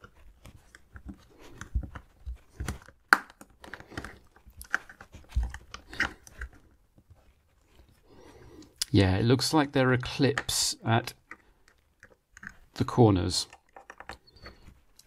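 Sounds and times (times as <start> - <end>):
sharp plastic crack: 2.6 - 6.2.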